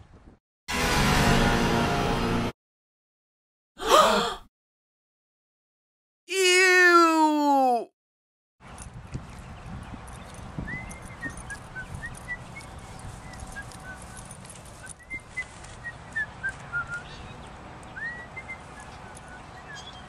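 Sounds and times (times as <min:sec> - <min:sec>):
whistled notes: 0:10.6 - 0:17.1, 0:18.0 - 0:20.0.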